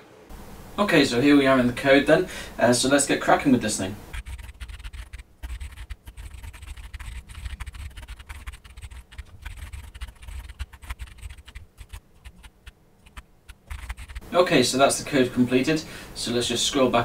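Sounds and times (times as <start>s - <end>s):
keyboard typing: 4.1s - 14.2s.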